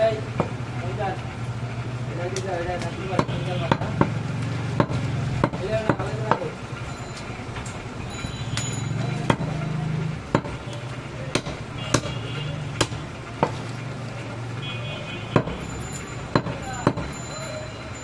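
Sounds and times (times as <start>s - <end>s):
knife chopping meat on wooden block: 3.2s - 6.5s, 10.3s - 10.6s, 11.3s - 12.2s, 12.8s - 13.7s, 15.4s - 15.6s, 16.4s - 17.1s.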